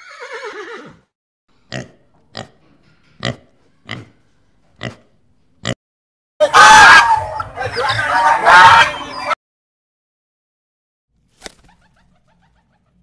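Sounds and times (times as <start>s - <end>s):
horse whinny: 0.0s - 1.1s.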